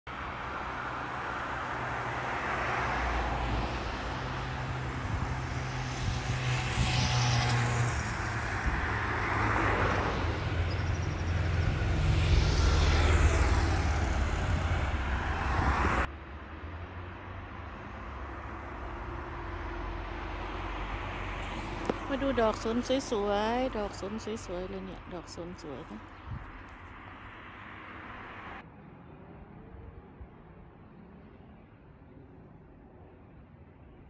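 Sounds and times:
cars passing: 0:00.1 - 0:30.1
low engine hum: 0:03.0 - 0:28.6.

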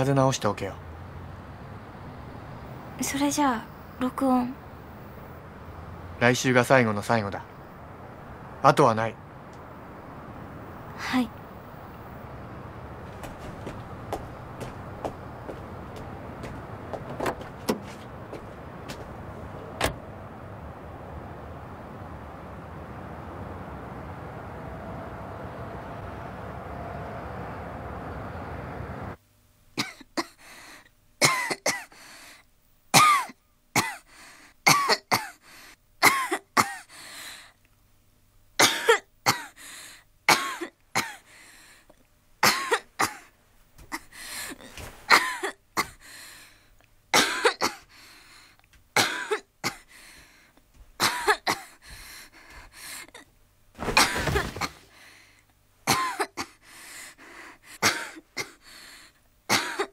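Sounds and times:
steady rumbling background noise: 0:00.0 - 0:59.9
person coughing: 0:29.8 - 0:30.4, 0:31.2 - 0:31.9, 0:33.0 - 0:34.1, 0:34.7 - 0:35.4, 0:36.0 - 0:36.9, 0:38.6 - 0:39.6, 0:40.3 - 0:41.3, 0:42.4 - 0:43.3, 0:44.7 - 0:46.0, 0:47.2 - 0:47.9, 0:49.0 - 0:49.9, 0:51.0 - 0:51.8, 0:55.9 - 0:56.6, 0:57.8 - 0:58.6, 0:59.5 - 0:59.9.

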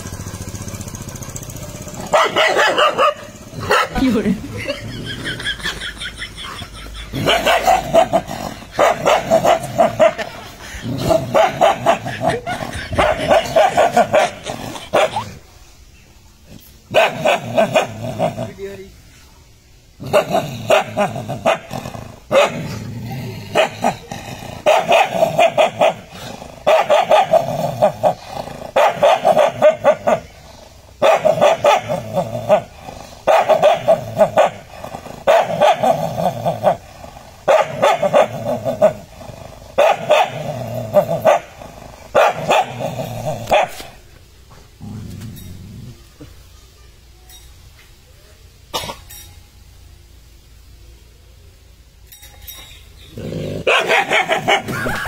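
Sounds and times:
dogs barking: 0:01.3 - 0:15.3, 0:16.9 - 0:18.4, 0:20.0 - 0:22.8, 0:23.5 - 0:36.8, 0:37.4 - 0:44.0, 0:53.6 - 0:55.0
dog growling: 0:07.1 - 0:15.5, 0:16.5 - 0:18.7, 0:20.0 - 0:43.8, 0:53.1 - 0:55.0.

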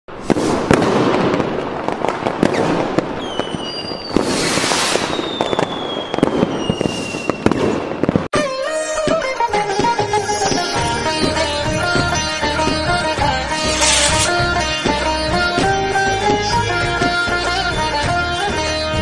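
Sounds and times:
firecrackers popping and crackling: 0:00.1 - 0:17.4
descending firework whistle: 0:02.4 - 0:11.6
steady hiss: 0:13.5 - 0:14.4.

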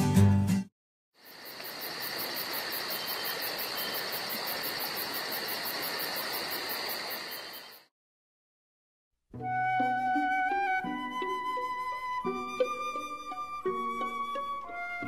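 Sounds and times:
insect trilling: 0:01.2 - 0:07.8
pulsing insect chirp: 0:01.2 - 0:07.9.

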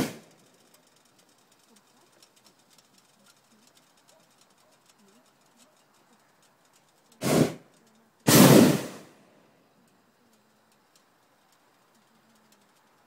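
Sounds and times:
propane burner blasts: 0:00.0 - 0:01.3, 0:07.2 - 0:09.2.

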